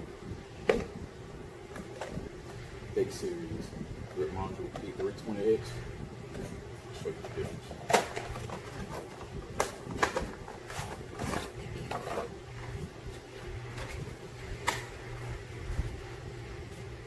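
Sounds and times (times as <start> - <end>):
steady low hum: 0.0 - 17.0
plastic packaging handling noise: 6.2 - 16.2.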